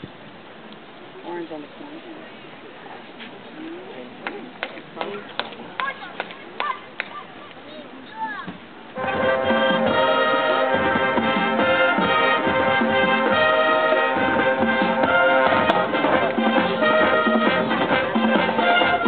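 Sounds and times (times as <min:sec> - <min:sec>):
brass chords: 0:09.0 - 0:19.0
drumline beat: 0:09.0 - 0:19.0.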